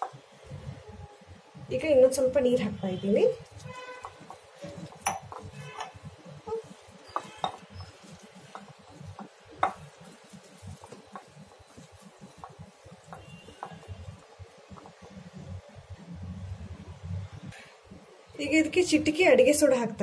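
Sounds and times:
hands mixing batter squelching: 2.9 - 15.6
florets knocking glass bowl: 4.0 - 6.1, 7.1 - 10.0.

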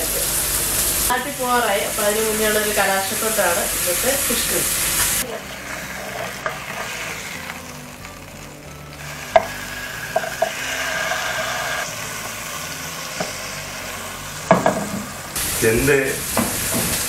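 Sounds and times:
fish sizzling in hot oil: 0.0 - 17.0
wooden spatula knocking on pan: 14.5 - 15.1.

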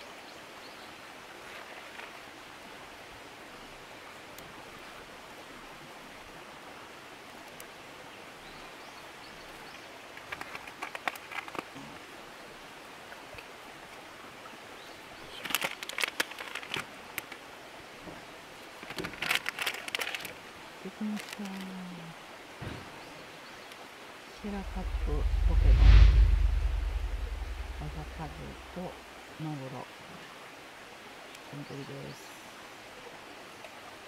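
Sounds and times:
soft outdoor hiss: 0.0 - 34.0
crackling clicks and rustles: 1.5 - 2.2, 10.1 - 12.1, 15.3 - 17.5, 18.6 - 21.8.

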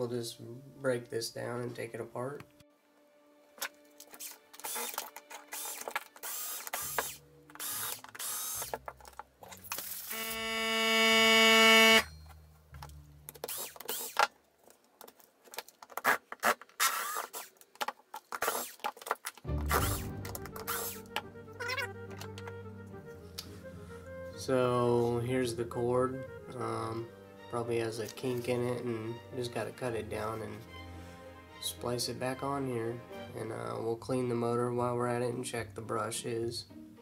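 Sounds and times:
plastic parts clicking and clattering: 3.6 - 10.1, 12.8 - 19.5
cordless screwdriver whirring: 4.1 - 8.8, 9.8 - 12.0, 13.4 - 14.3, 16.0 - 17.6, 19.7 - 21.2.

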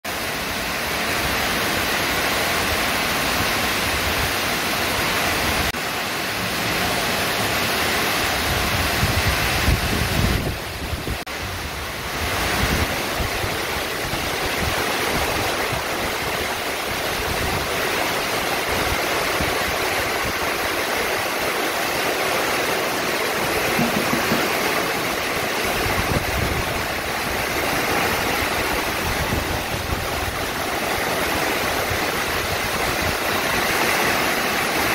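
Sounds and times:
heavy rain hissing: 0.1 - 34.9
wind gusts buffeting microphone: 8.3 - 22.0, 22.6 - 34.9.

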